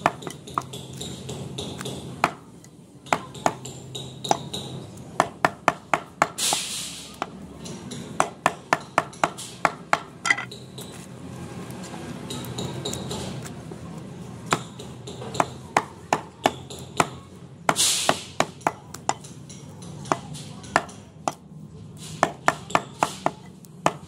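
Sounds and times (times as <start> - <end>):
cleaver chopping on wood: 0.0 - 2.5, 3.1 - 7.3, 14.4 - 21.4, 22.2 - 24.0.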